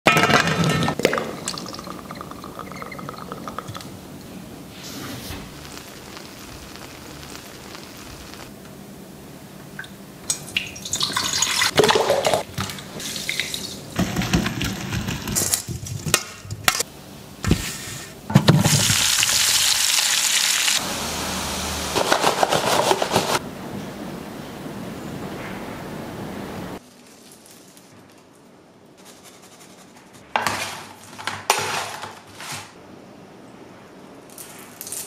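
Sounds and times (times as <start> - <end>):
steady sizzling hiss: 1.0 - 11.7.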